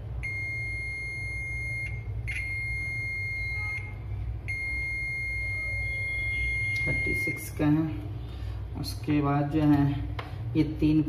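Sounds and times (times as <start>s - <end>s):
multimeter continuity beep: 0.2s - 7.6s.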